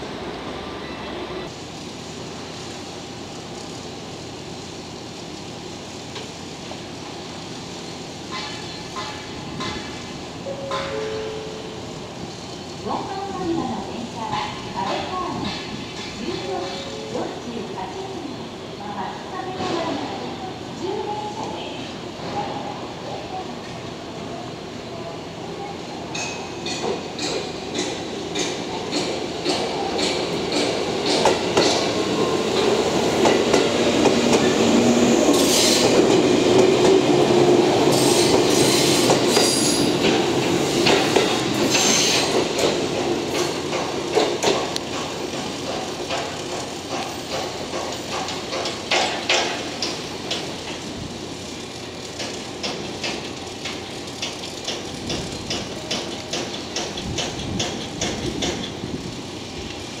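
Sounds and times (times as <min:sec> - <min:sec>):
electric train rumble: 0:00.0 - 1:00.0
wheels clicking over rail joints: 0:26.1 - 0:34.9, 0:35.8 - 1:00.0
high wheel squeals: 0:37.9 - 0:39.9.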